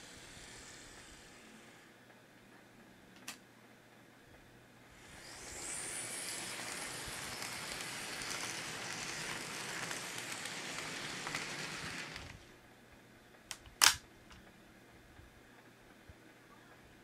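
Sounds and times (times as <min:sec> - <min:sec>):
model train rolling on track: 0:00.0 - 0:01.9, 0:04.9 - 0:12.6.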